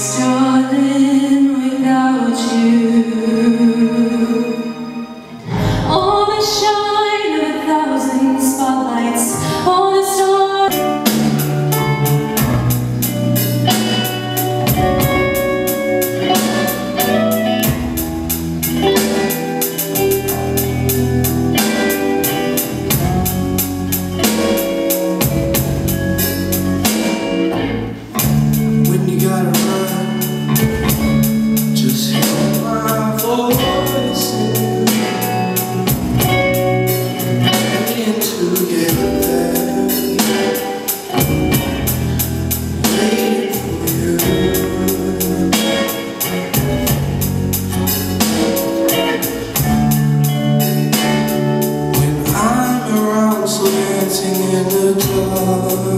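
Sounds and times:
electric bass guitar: 0:00.0 - 0:04.2, 0:08.0 - 0:55.9
woman singing: 0:00.0 - 0:11.1, 0:28.8 - 0:36.4, 0:37.5 - 0:41.6, 0:42.8 - 0:46.9
electronic drum kit: 0:10.7 - 0:55.9.

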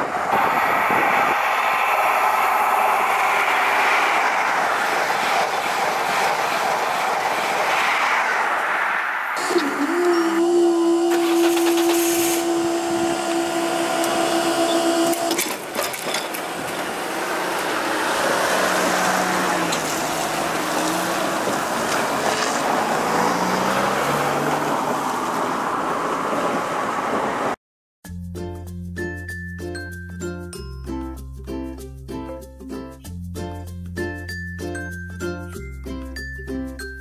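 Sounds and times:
vehicles passing over crossing: 0:00.0 - 0:27.6
level crossing barrier machinery whining: 0:09.4 - 0:20.7.

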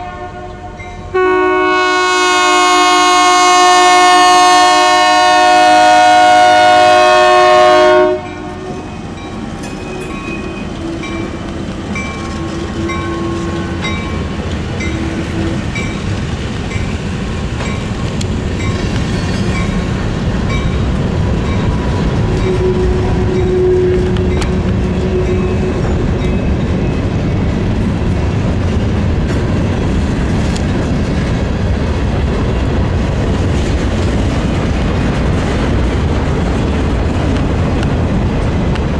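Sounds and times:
train horn chord: 0:00.0 - 0:08.9, 0:12.7 - 0:13.9, 0:22.4 - 0:25.9
train rumbling past on rails: 0:00.0 - 0:38.9.

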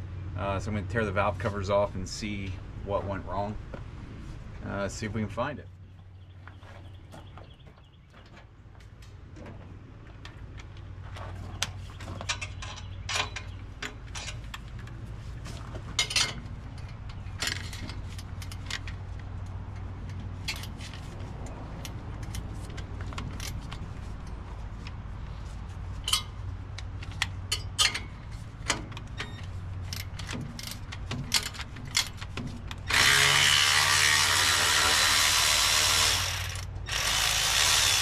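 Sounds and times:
hand tools clanking on metal: 0:11.5 - 0:14.9, 0:15.8 - 0:19.0, 0:26.0 - 0:33.4.

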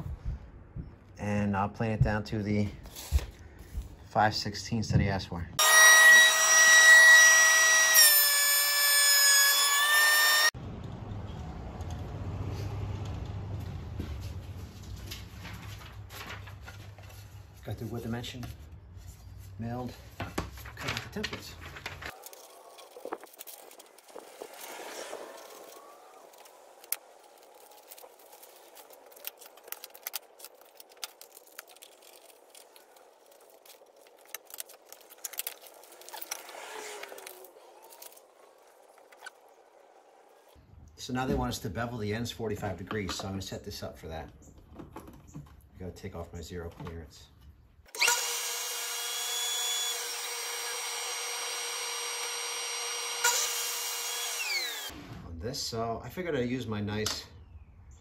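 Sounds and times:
paper rustling: 0:02.8 - 0:03.9, 0:14.4 - 0:39.4
table saw motor whine: 0:05.6 - 0:10.5, 0:48.0 - 0:54.9
wood pieces clicking: 0:25.6 - 0:39.4.

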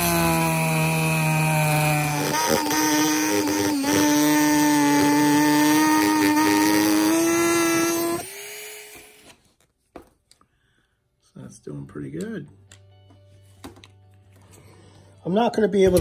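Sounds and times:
rotary tool cutting plastic: 0:00.0 - 0:09.4.

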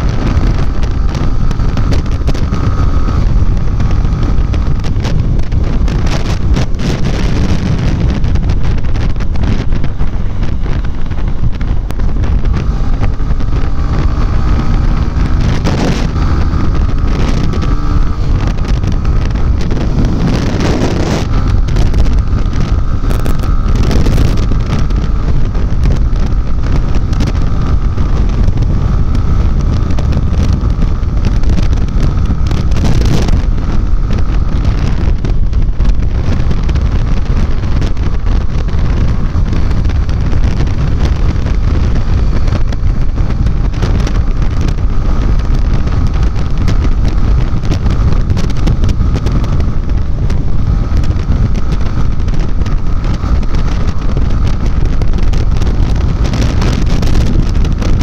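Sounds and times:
motorcycle engine running: 0:00.0 - 0:58.0
wind buffeting microphone: 0:00.0 - 0:58.0.

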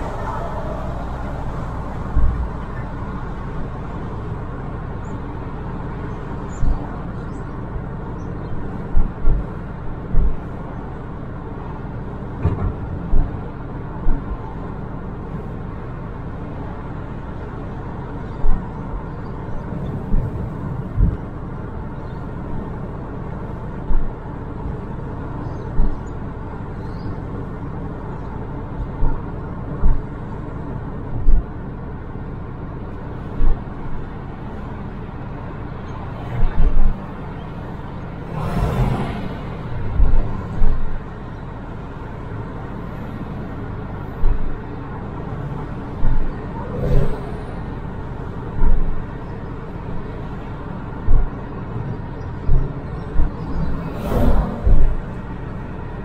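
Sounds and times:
car road and engine rumble: 0:00.0 - 0:56.0
loud low thumps: 0:01.9 - 0:02.8.

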